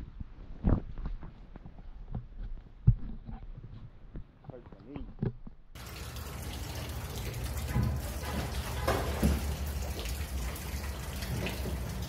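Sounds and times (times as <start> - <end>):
water lapping around dock pilings: 5.8 - 12.0.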